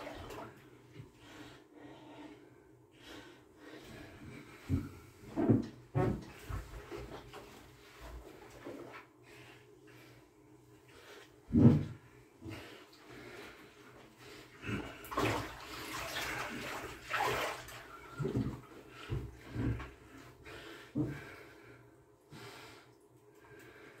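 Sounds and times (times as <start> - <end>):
bathwater sloshing and splashing: 0.0 - 1.3, 4.6 - 9.2, 10.9 - 20.4.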